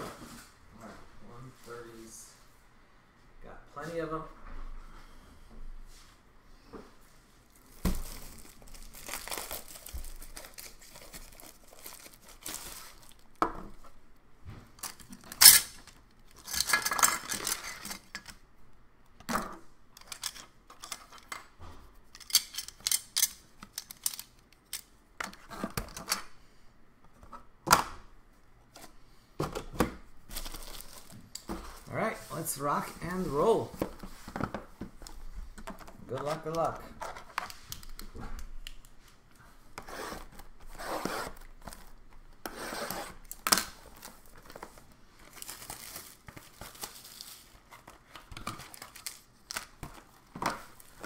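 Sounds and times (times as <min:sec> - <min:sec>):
plastic bag crinkling: 0:07.5 - 0:13.4, 0:30.3 - 0:33.6, 0:43.2 - 0:51.0.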